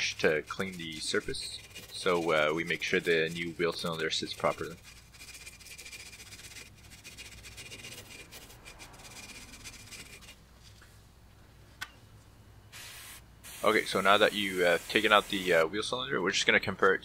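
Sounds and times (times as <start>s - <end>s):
wire brush scrubbing metal: 0.0s - 10.4s, 13.6s - 15.6s.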